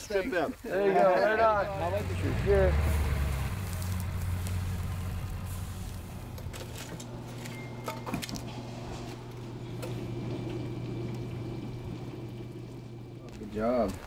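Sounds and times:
steady low hum: 0:01.2 - 0:14.0
low rumble: 0:01.5 - 0:07.8.

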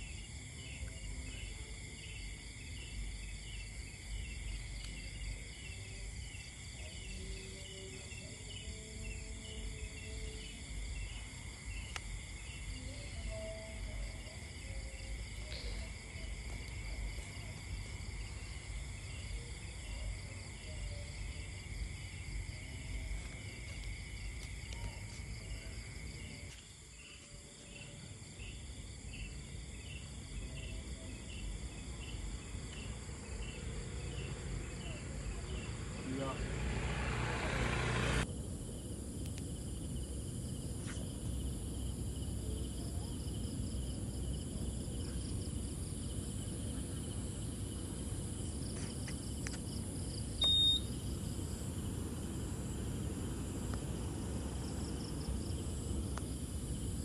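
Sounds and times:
crickets and insects trilling: 0:00.0 - 0:57.0
low rumble of outdoor noise: 0:00.0 - 0:57.0.

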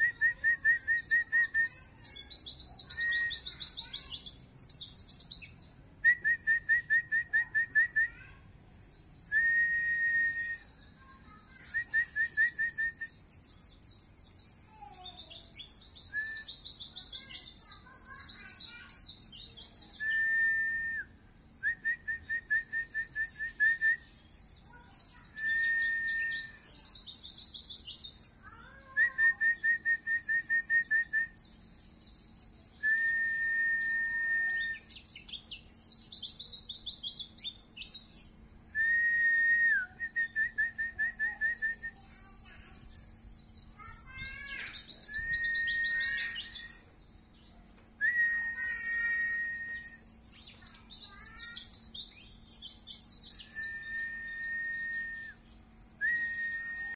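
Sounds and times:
bird whistles: 0:00.0 - 0:02.2, 0:09.2 - 0:10.8, 0:11.6 - 0:13.2, 0:16.0 - 0:16.6, 0:20.0 - 0:24.2, 0:25.1 - 0:26.8, 0:32.7 - 0:35.9, 0:44.1 - 0:46.8, 0:48.0 - 0:50.4, 0:53.0 - 0:56.9.

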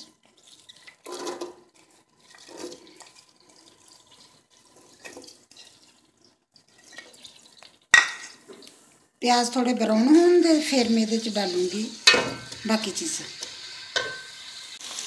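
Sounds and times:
onions sizzling in hot oil: 0:10.0 - 0:15.0.

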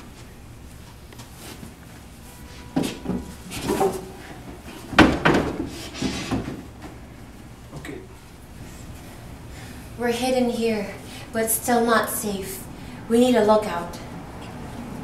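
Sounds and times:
knocks and bumps on door: 0:04.9 - 0:06.6.

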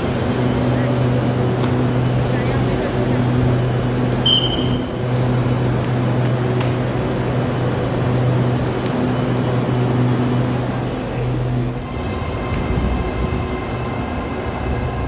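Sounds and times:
electric train humming: 0:00.0 - 0:15.0
short high beep: 0:04.3 - 0:04.9.

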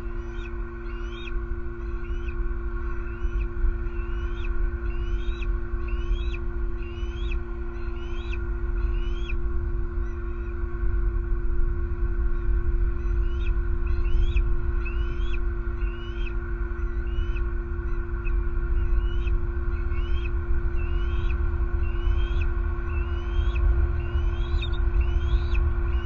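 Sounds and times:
low electrical hum: 0:00.0 - 0:26.0
eagle whistled squeals: 0:00.2 - 0:09.4, 0:13.0 - 0:26.0
road traffic rumble: 0:18.2 - 0:26.0.

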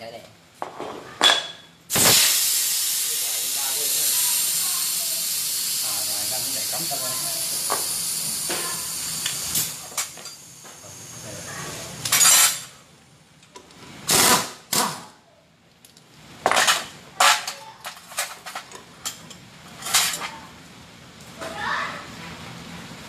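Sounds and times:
hiss: 0:01.9 - 0:11.5
metal tools clinking: 0:15.8 - 0:20.4.

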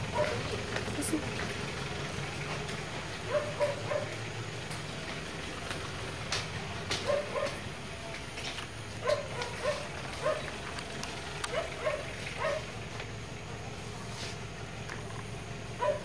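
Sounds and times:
dog barking: 0:00.1 - 0:00.5, 0:03.3 - 0:04.2, 0:07.0 - 0:07.6, 0:09.0 - 0:10.5, 0:11.5 - 0:12.7, 0:15.8 - 0:16.0.

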